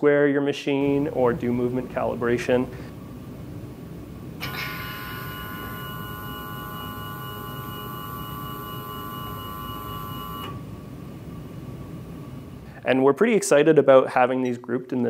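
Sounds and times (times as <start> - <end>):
stepper motors whining: 4.4 - 10.7.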